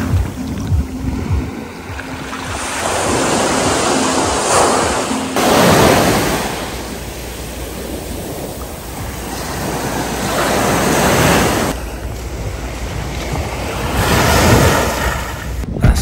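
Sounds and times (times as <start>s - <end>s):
small waves breaking on beach: 0.0s - 15.6s.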